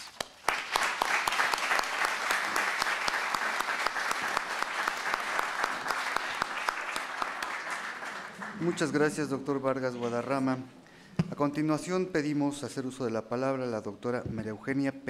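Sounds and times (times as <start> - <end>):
audience applauding: 0.0 - 9.4.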